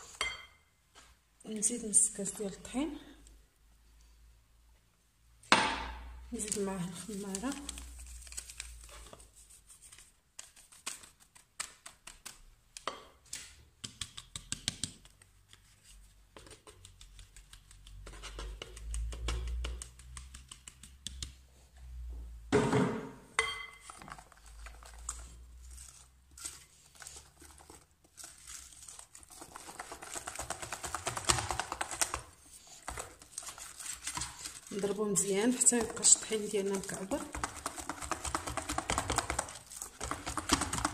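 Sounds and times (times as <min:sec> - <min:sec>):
whisk beating batter: 0:16.4 - 0:21.3, 0:24.1 - 0:40.9
spatula scraping sieve mesh: 0:31.1 - 0:40.9.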